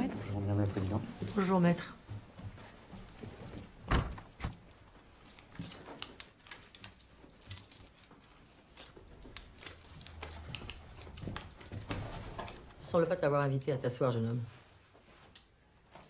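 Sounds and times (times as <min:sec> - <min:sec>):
footsteps: 0:00.7 - 0:06.0, 0:07.1 - 0:12.8.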